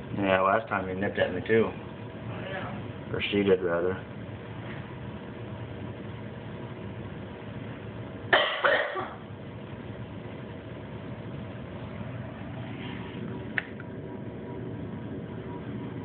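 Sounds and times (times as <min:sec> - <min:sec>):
low room hum: 0:00.0 - 0:16.0
person coughing: 0:08.3 - 0:09.2.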